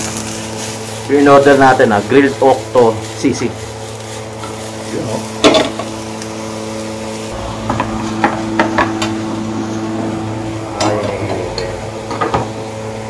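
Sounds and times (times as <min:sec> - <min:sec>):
steady machine hum: 0:00.0 - 0:13.0
metal utensils clinking on cookware: 0:05.4 - 0:05.9.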